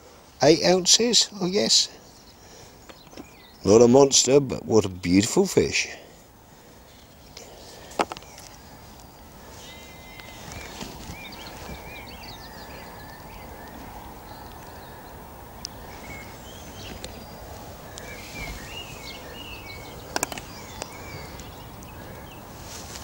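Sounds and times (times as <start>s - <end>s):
low background noise: 0.0s - 23.0s
small birds chirping: 0.0s - 23.0s
sharp clicks: 20.0s - 21.9s.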